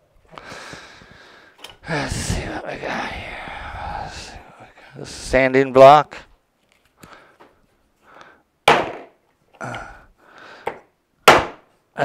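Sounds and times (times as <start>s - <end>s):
block hammering on plastic: 8.7s - 9.1s, 10.7s - 11.6s.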